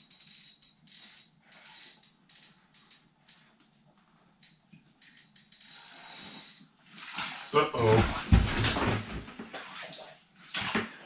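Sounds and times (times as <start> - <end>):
fishing reel clicking and buzzing: 0.0 - 3.4, 4.4 - 6.8.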